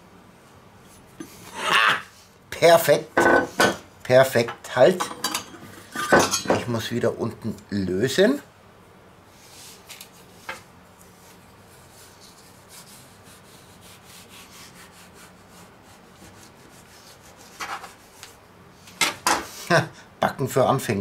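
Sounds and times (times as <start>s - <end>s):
metal knife scraping baking mat: 11.8s - 18.2s.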